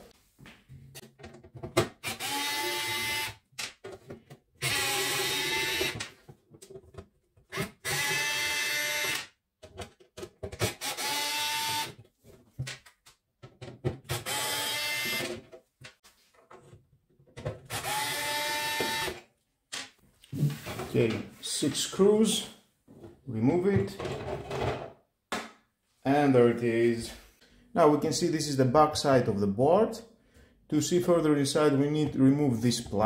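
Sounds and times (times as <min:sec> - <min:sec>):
electric screwdriver motor whine: 0:02.1 - 0:03.3, 0:04.6 - 0:06.0, 0:10.8 - 0:11.9, 0:14.2 - 0:15.3, 0:17.8 - 0:19.2.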